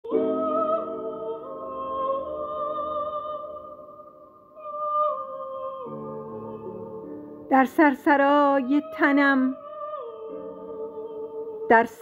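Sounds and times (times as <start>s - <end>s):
slow background music: 0.1s - 12.0s.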